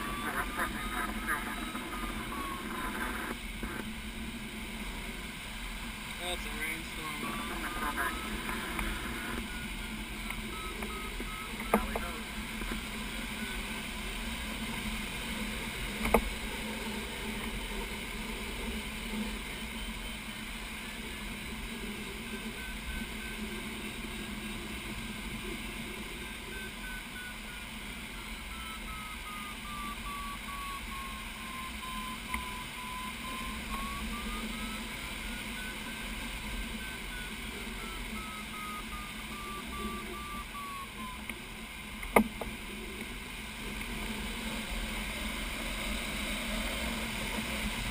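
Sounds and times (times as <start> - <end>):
variometer beeping: 0.0 - 4.0, 6.2 - 15.1, 18.6 - 43.1.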